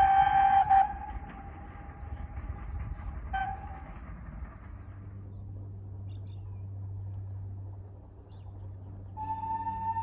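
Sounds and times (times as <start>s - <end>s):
steam train whistle toot: 0.0s - 1.1s
distant train rumble: 0.0s - 10.0s
low hum: 0.0s - 10.0s.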